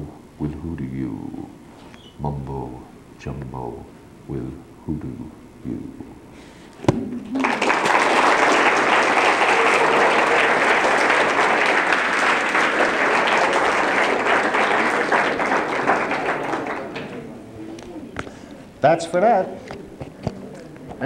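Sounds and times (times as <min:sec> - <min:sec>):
audience applauding: 0:07.1 - 0:17.3.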